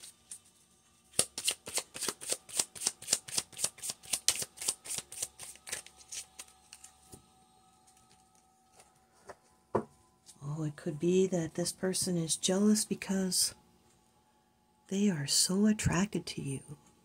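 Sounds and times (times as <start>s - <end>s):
cards being shuffled: 1.1s - 7.1s.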